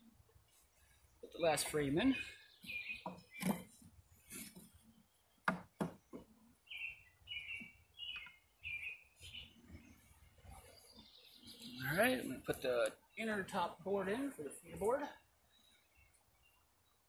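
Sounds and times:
small bird chirping: 0.8 - 13.6
wooden frames knocking and clacking: 2.6 - 4.8, 5.4 - 6.4.

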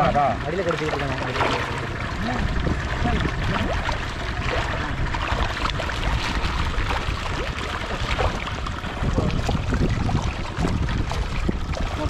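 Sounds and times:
fish splashing in river water: 0.0 - 12.0
steady low rumble: 0.0 - 12.0.

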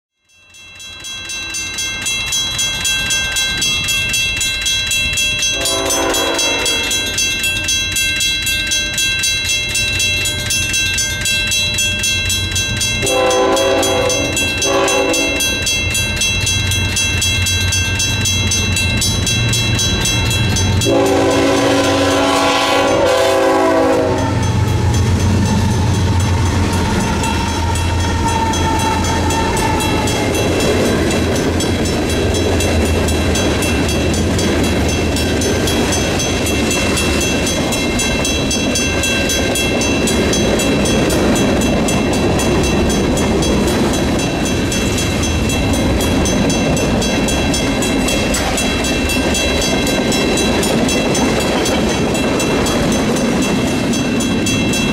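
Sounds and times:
crossing bell ringing: 0.2 - 54.9
train engines rumbling: 0.5 - 54.9
locomotive air horn: 5.5 - 7.0, 13.0 - 15.5, 20.8 - 24.6.

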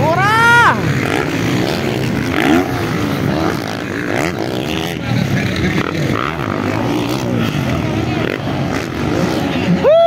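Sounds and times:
dirt bike engines revving: 0.0 - 10.0.

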